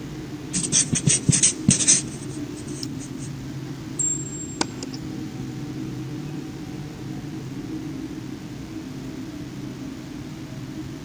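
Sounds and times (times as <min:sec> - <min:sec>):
steady low hum: 0:00.0 - 0:11.0
marker pen scribbling: 0:00.5 - 0:03.3.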